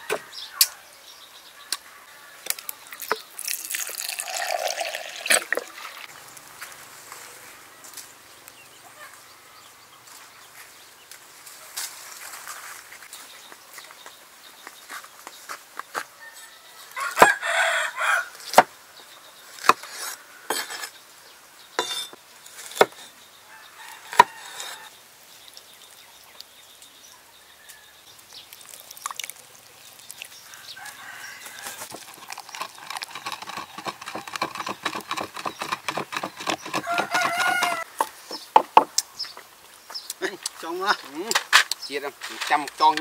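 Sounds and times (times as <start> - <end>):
rooster crowing: 16.2 - 18.4, 23.5 - 24.9, 30.4 - 32.0, 36.7 - 38.2
pestle pounding in wooden mortar: 31.8 - 39.0
cleaver chopping on wooden board: 33.2 - 38.9.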